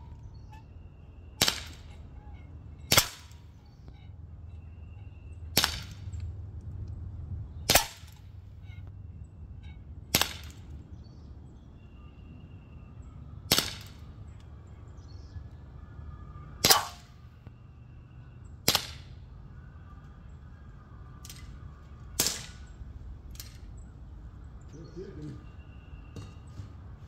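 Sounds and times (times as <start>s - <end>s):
air pistol shots: 1.4s - 1.9s, 2.9s - 3.4s, 5.6s - 6.2s, 7.7s - 8.2s, 10.1s - 10.7s, 13.5s - 14.0s, 16.6s - 17.2s, 18.6s - 19.2s, 22.2s - 22.7s.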